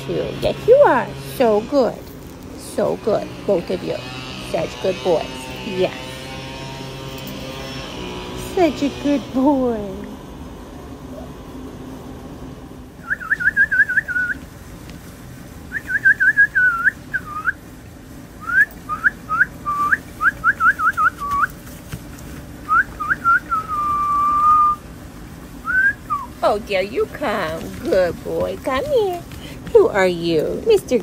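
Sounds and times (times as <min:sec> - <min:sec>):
person whistling: 0:22.7 - 0:24.8, 0:25.7 - 0:26.3.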